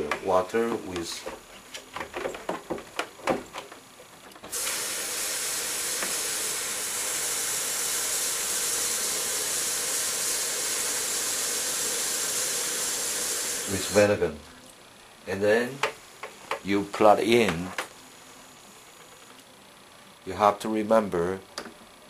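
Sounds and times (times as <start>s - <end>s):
knocks and clicks of handling: 0.0s - 4.5s
tap water running into bucket: 4.5s - 13.9s.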